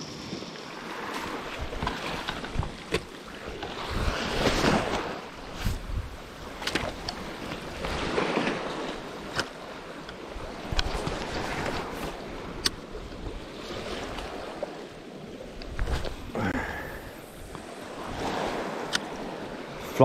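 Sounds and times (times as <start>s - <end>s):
small waves washing over rocks: 0.0s - 20.0s
wind on microphone: 1.0s - 9.3s, 15.5s - 19.8s.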